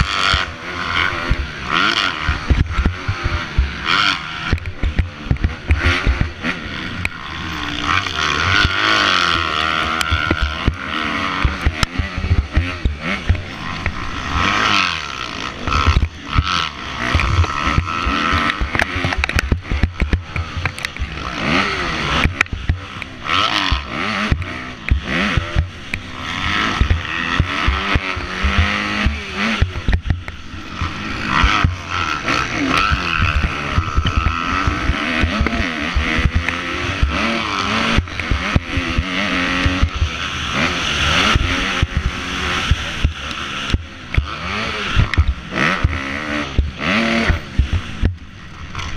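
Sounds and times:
dirt bike engine revving: 0:00.0 - 0:48.9
thumps on microphone: 0:02.3 - 0:03.8, 0:04.5 - 0:06.4, 0:28.4 - 0:30.4, 0:45.0 - 0:48.3.

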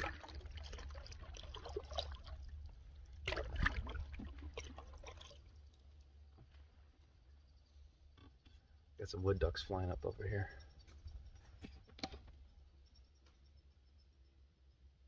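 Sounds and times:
water splash: 0:00.0 - 0:05.5
water dripping: 0:00.0 - 0:06.8
low steady rumble: 0:00.0 - 0:11.5.

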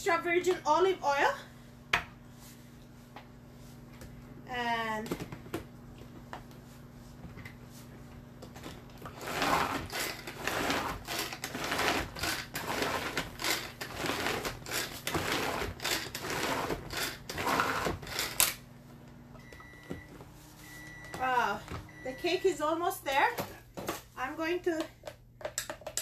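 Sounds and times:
blades chopping food: 0:09.0 - 0:18.5.

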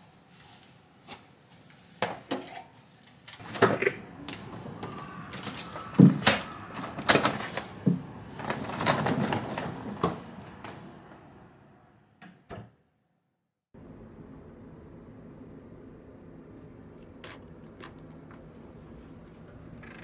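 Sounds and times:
suitcase wheels rolling on tiles: 0:03.4 - 0:10.7
steady low background noise: 0:13.8 - 0:20.0.

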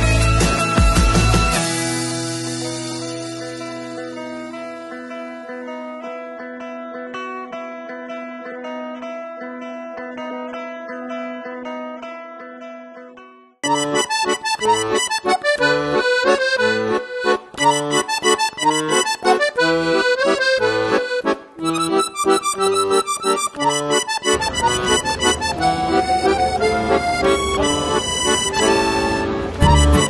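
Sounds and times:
instrumental tune with bass line: 0:00.0 - 0:05.2, 0:13.6 - 0:30.0.

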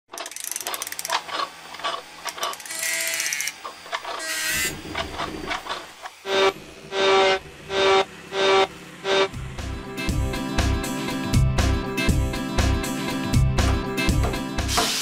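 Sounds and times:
fast ratcheting clatter of clicks: 0:00.1 - 0:03.6
short whirring buzzes: 0:00.2 - 0:11.3.

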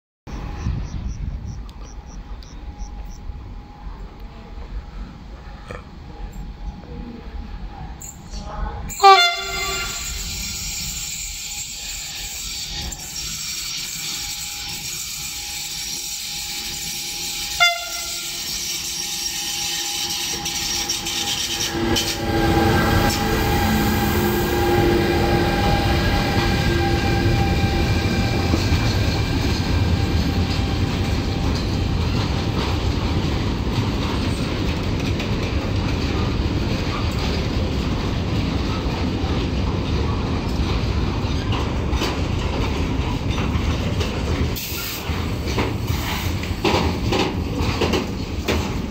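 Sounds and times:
locomotive whine: 0:00.3 - 0:48.9
train wheels rumbling on rail: 0:00.3 - 0:48.9
train horn blast: 0:08.9 - 0:31.8.

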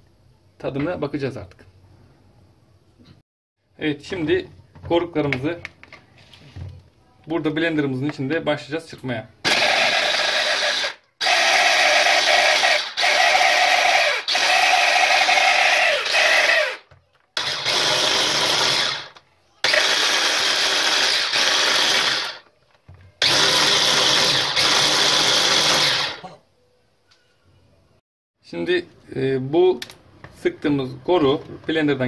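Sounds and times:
electric hand blender chopping: 0:09.5 - 0:16.8, 0:17.4 - 0:22.4, 0:23.2 - 0:26.2.

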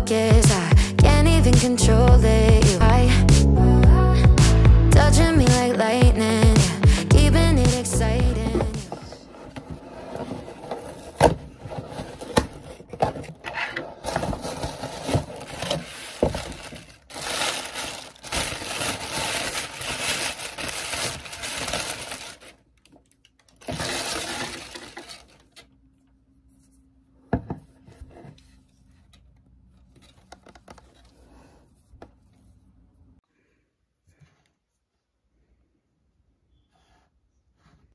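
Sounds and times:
packaging crinkling and rustling: 0:08.4 - 0:25.6.

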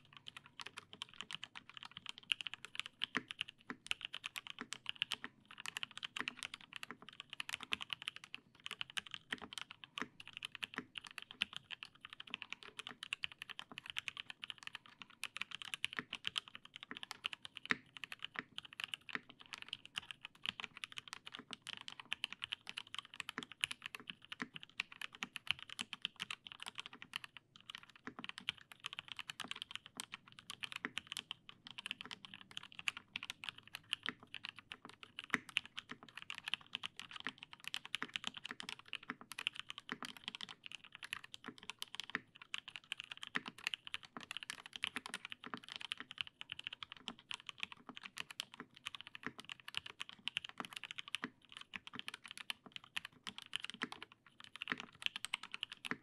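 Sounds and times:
mechanical keyboard typing: 0:00.0 - 0:56.0.

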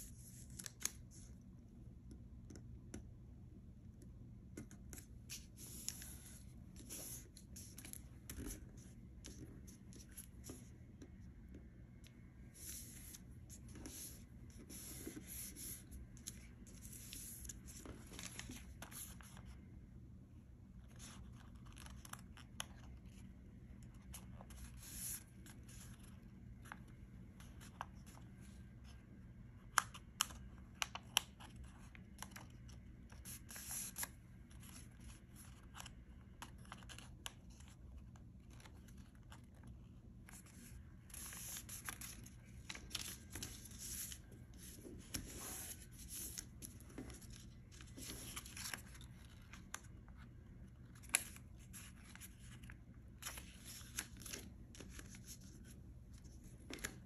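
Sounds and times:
paper rustling and crinkling: 0:12.6 - 0:19.6, 0:31.0 - 0:57.0.

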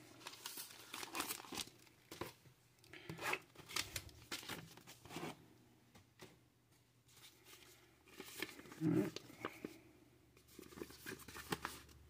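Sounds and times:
plastic bag crinkling: 0:00.0 - 0:02.3
paper and cardboard handling: 0:07.1 - 0:09.8, 0:10.4 - 0:12.0.

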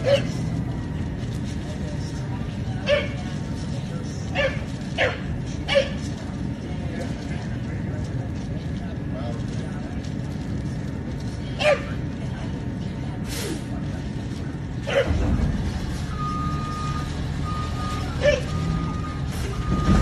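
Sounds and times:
dog barking: 0:00.0 - 0:00.4, 0:04.3 - 0:06.0, 0:11.6 - 0:12.0, 0:14.8 - 0:15.2, 0:18.2 - 0:18.5
garbage truck engine running: 0:00.0 - 0:20.0
reversing alarm beeping: 0:15.8 - 0:20.0.

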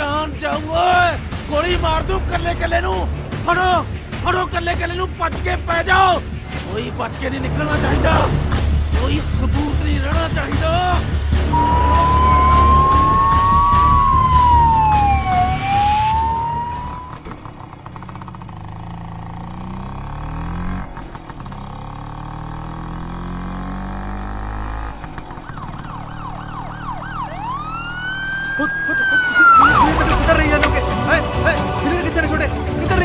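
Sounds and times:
low drone: 0:11.5 - 0:17.2
police siren wailing: 0:11.5 - 0:17.3, 0:25.0 - 0:30.6.

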